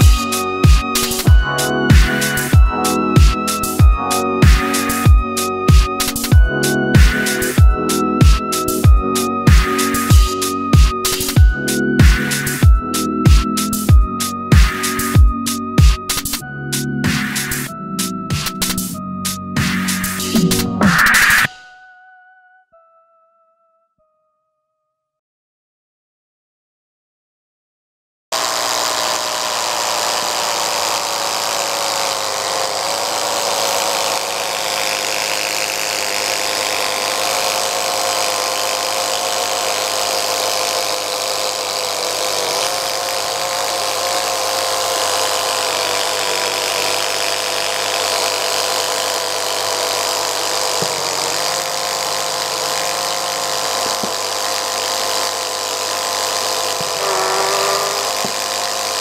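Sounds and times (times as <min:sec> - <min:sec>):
plastic pistons whirring: 0:00.0 - 0:06.4, 0:28.3 - 0:59.0
small electric motor whining: 0:00.0 - 0:16.4, 0:28.3 - 0:59.0.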